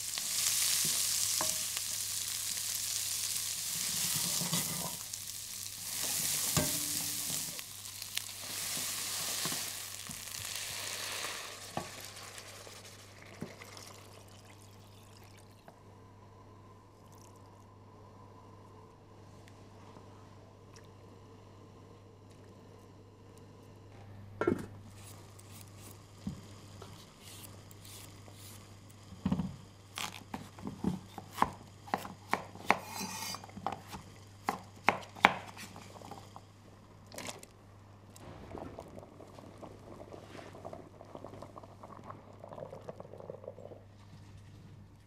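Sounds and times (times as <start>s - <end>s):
pots and utensils clattering: 3.9s - 5.0s
steady low hum: 11.4s - 31.9s.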